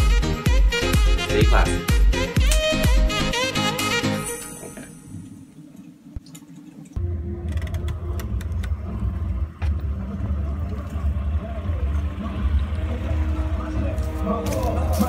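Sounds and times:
music: 0:00.0 - 0:05.2, 0:07.0 - 0:15.0.

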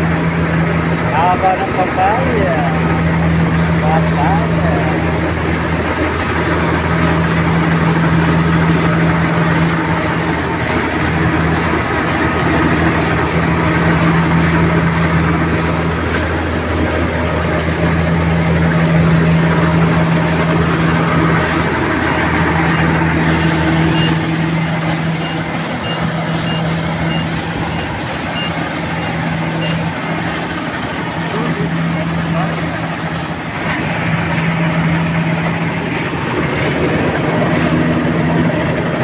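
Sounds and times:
harvester engine humming: 0:00.0 - 0:39.0
electronic reversing beep: 0:22.6 - 0:30.0.

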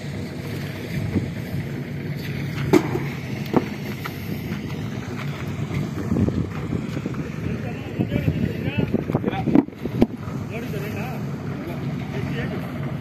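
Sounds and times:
engine rumble: 0:00.0 - 0:13.0
wind on microphone: 0:02.5 - 0:10.4.

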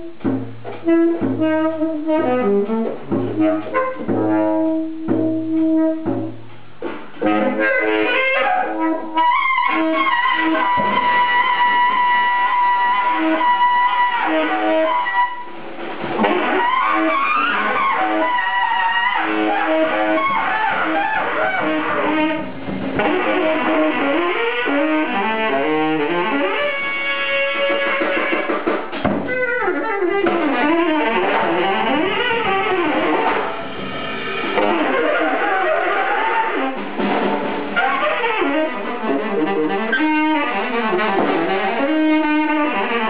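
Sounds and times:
drums: 0:00.0 - 0:43.0
saxophone gliding lines: 0:16.2 - 0:28.6, 0:29.3 - 0:37.1.

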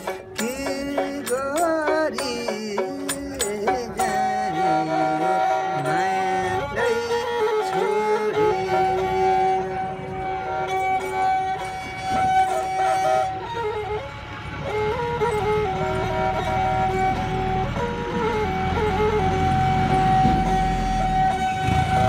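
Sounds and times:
man singing: 0:00.0 - 0:09.8
bowed fiddle melody: 0:00.0 - 0:22.0.

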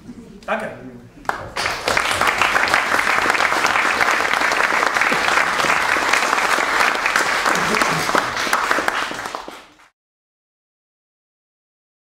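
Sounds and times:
audience applauding: 0:01.3 - 0:09.9.

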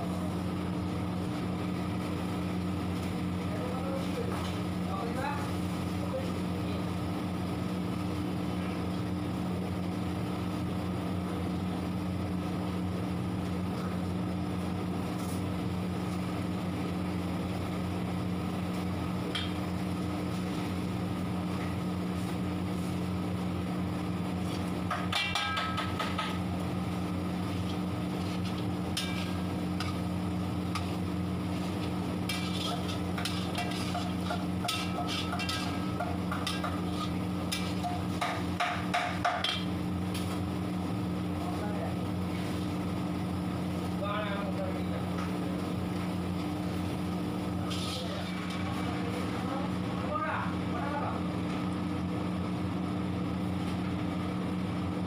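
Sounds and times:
kitchen equipment hum: 0:00.0 - 0:55.0
metal ladle scraping steel pan: 0:32.3 - 0:37.8.

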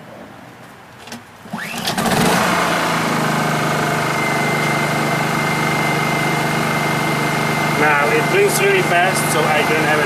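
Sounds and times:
generator engine running: 0:01.4 - 0:10.0
pull-start whirr: 0:01.4 - 0:10.0.

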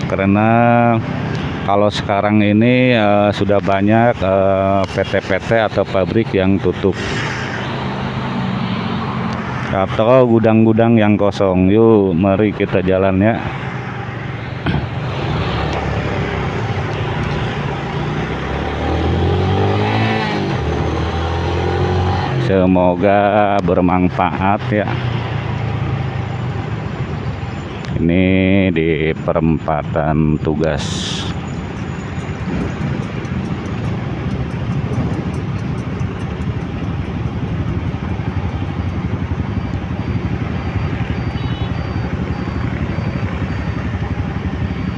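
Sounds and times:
traffic: 0:00.0 - 0:44.9
motorcycle engine running: 0:30.9 - 0:44.9.

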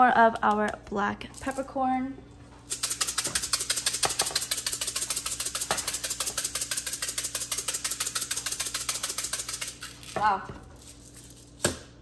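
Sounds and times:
pepper grinder ratcheting clicks: 0:02.7 - 0:10.2.

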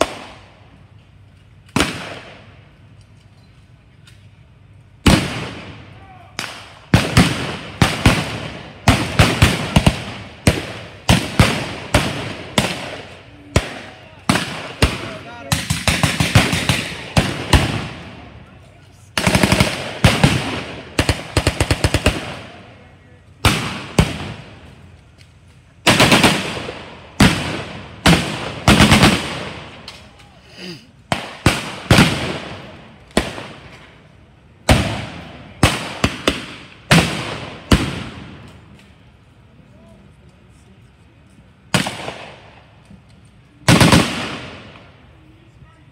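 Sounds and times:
gunshots echoing: 0:00.0 - 0:00.6, 0:01.7 - 0:02.5, 0:05.0 - 0:18.4, 0:19.1 - 0:22.7, 0:23.4 - 0:24.6, 0:25.8 - 0:29.9, 0:31.1 - 0:33.8, 0:34.6 - 0:38.6, 0:41.7 - 0:42.6, 0:43.7 - 0:44.8.

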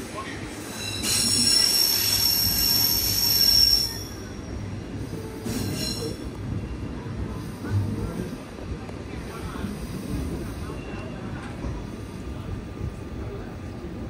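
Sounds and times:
train wheels squealing on rails: 0:00.0 - 0:08.5, 0:09.2 - 0:12.5
low rumble of running train: 0:00.0 - 0:14.0.

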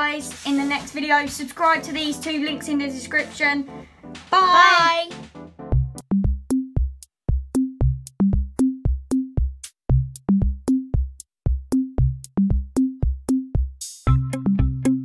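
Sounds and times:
electronic music with drum-machine beat: 0:00.0 - 0:15.0.

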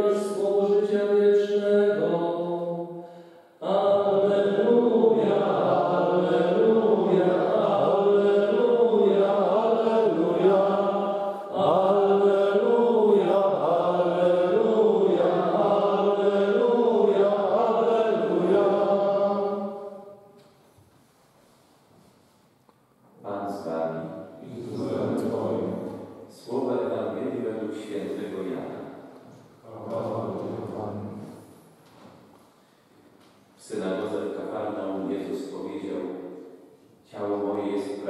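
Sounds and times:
men singing a church chant: 0:00.0 - 0:20.1.

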